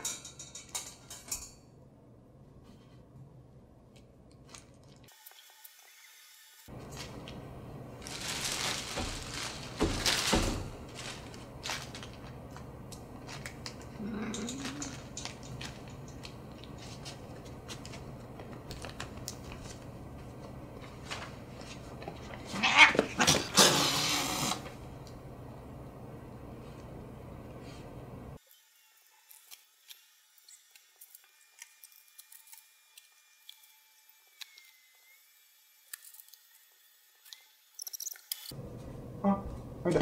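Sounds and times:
cat growling and hissing: 0:14.0 - 0:15.0, 0:22.4 - 0:24.7.

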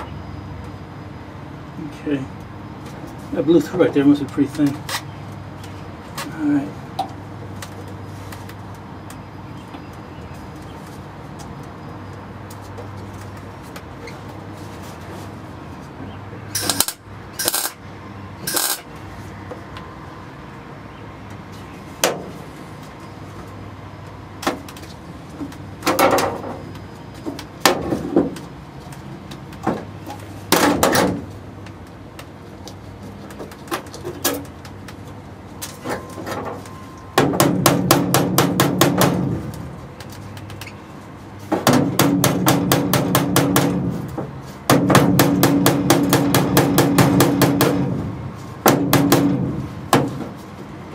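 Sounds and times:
welder crackling: 0:16.6 - 0:17.8, 0:18.4 - 0:18.9
knocks on sheet steel: 0:37.2 - 0:39.4, 0:41.6 - 0:50.3.

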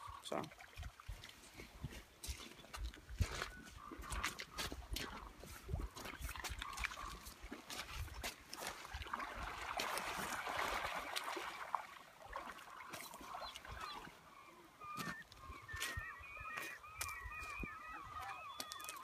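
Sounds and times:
gulls calling: 0:10.0 - 0:19.0.

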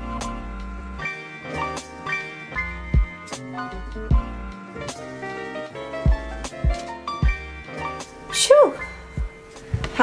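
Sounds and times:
music with held chords over a beat: 0:00.0 - 0:08.1
deep kick drum: 0:04.1 - 0:04.4.

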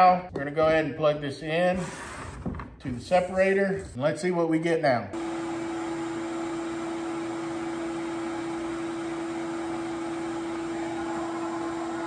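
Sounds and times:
shop vacuum running: 0:05.2 - 0:12.0.

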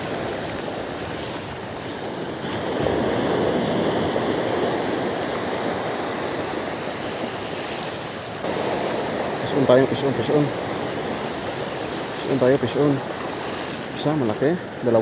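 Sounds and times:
waves breaking on beach: 0:00.0 - 0:15.0.

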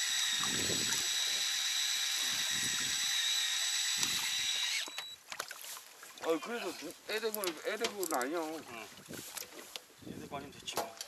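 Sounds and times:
electric fishing reel motor whine: 0:00.0 - 0:05.2.

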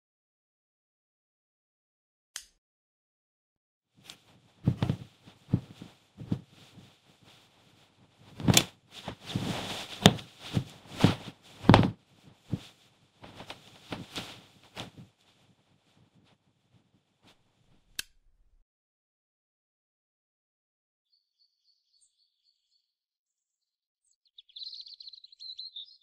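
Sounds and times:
cloth rustling: 0:04.0 - 0:17.8.

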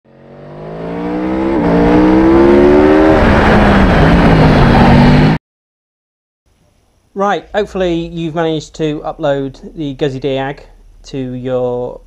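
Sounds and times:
racing engine accelerating: 0:00.1 - 0:05.4.

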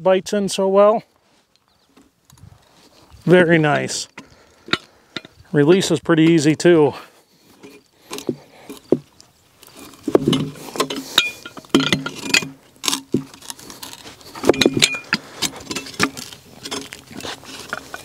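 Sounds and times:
metal hook knocking against logs: 0:10.1 - 0:13.4, 0:14.4 - 0:16.9.

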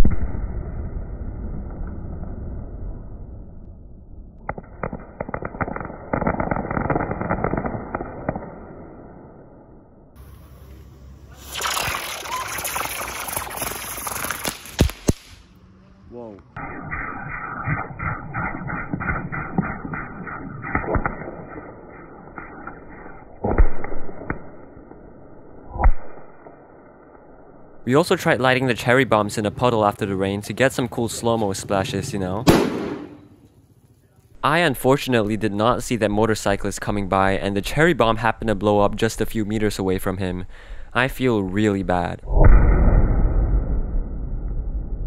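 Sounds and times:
low rumble: 0:00.0 - 0:05.1, 0:42.2 - 0:45.0
fireworks crackling: 0:04.4 - 0:08.9, 0:11.3 - 0:15.5, 0:32.3 - 0:37.8
faint firework pops: 0:13.2 - 0:15.4
muffled fireworks bangs: 0:32.4 - 0:33.5.

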